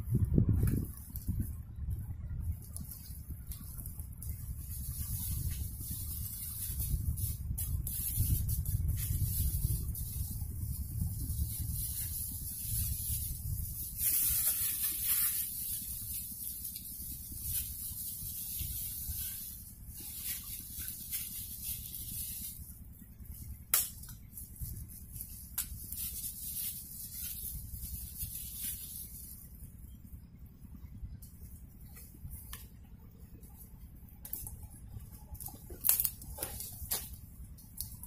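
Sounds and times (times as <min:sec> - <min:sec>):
low rumble: 0:00.0 - 0:15.0.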